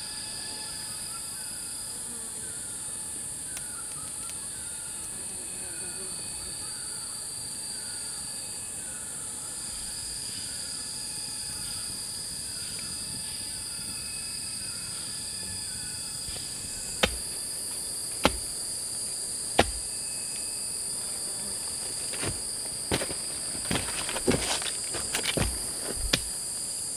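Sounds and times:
insects droning: 0.0s - 26.9s
sharp knocks: 17.0s - 17.3s, 18.2s - 18.5s, 19.6s - 19.9s.

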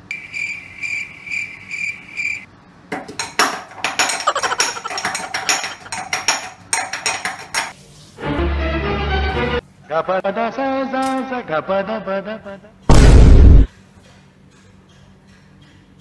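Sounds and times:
cricket chirping: 0.0s - 2.5s
steel utensils clanking at a sink: 3.2s - 7.7s.

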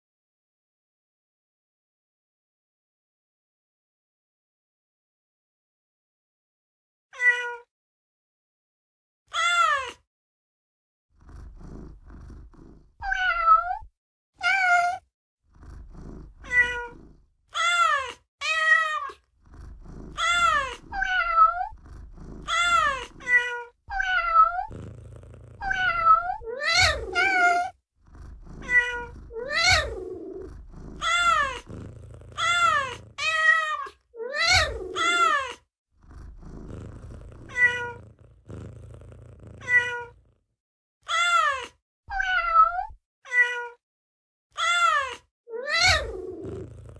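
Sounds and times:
cat meowing: 7.2s - 7.7s, 9.3s - 10.0s, 13.0s - 15.0s, 16.4s - 19.2s, 20.2s - 21.8s, 22.4s - 24.7s, 25.6s - 27.7s, 28.6s - 30.4s, 31.0s - 31.7s, 32.4s - 35.6s, 37.4s - 38.0s, 39.6s - 40.2s, 41.1s - 43.8s, 44.6s - 46.6s
cat purring: 11.2s - 13.9s, 15.5s - 17.4s, 19.1s - 33.7s, 34.3s - 40.5s, 45.8s - 46.9s.

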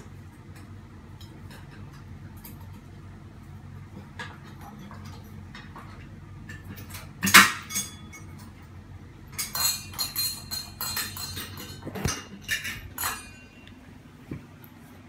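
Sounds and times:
metal parts clinking: 4.2s - 8.6s, 9.3s - 13.8s
sharp metal clack: 9.4s - 13.7s.

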